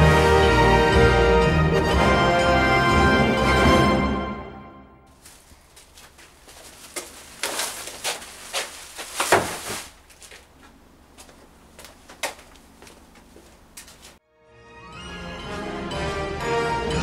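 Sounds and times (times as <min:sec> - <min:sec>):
plastic bag rustling: 0:05.1 - 0:12.8
bin bag dropped into wheelie bin: 0:06.7 - 0:10.4.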